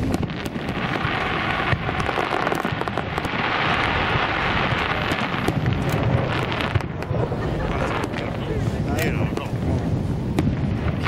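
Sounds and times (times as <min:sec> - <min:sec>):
firework shells bursting: 0:00.0 - 0:11.0.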